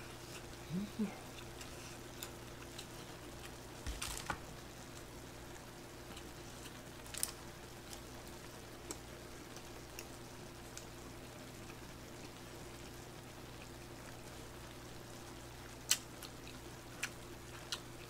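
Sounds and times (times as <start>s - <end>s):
steady low hum: 0.0s - 18.0s
wet chewing sounds: 15.8s - 18.0s.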